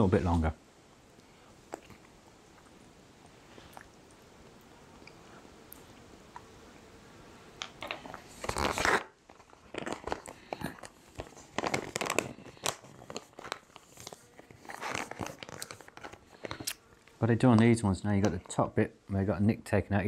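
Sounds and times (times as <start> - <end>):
foil pouch crinkling: 7.8 - 16.8.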